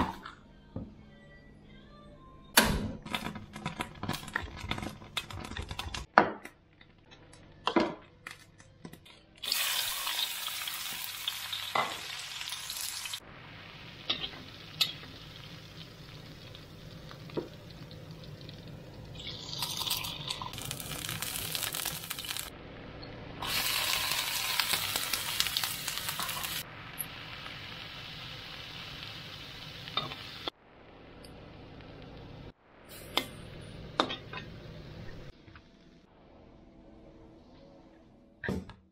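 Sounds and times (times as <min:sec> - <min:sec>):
food sizzling in oil: 0:09.4 - 0:22.5, 0:23.4 - 0:30.5.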